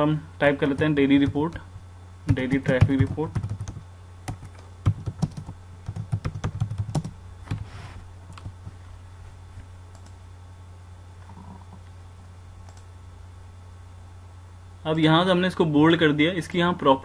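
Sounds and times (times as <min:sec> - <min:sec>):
steady low hum: 0:00.0 - 0:17.0
typing on computer keyboard: 0:02.3 - 0:07.1.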